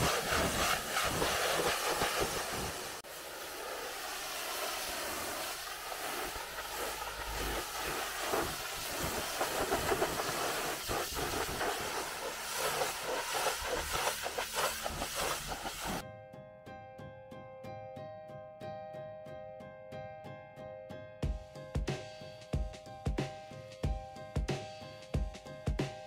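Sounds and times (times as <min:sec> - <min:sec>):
pressure washer spraying car: 0:00.0 - 0:16.0
plucked piano-like music: 0:16.0 - 0:26.0.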